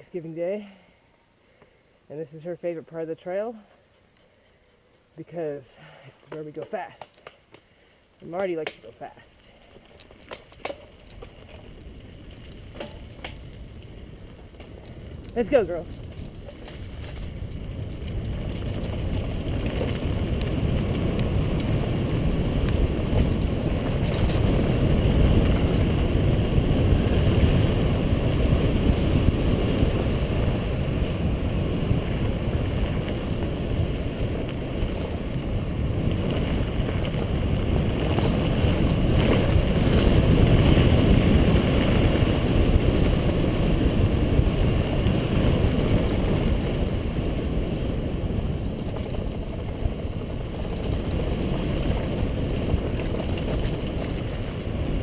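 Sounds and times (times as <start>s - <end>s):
wind rushing over microphone: 11.7s - 55.0s.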